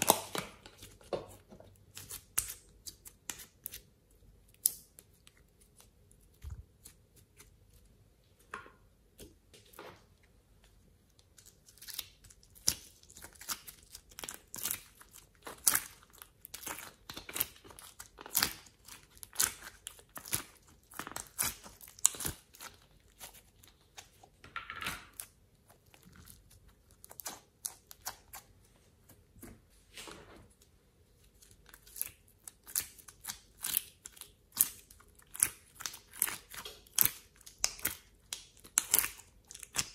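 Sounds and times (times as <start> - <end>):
sticky slime clicks and crackles: 0.0 - 0.6, 31.8 - 39.9.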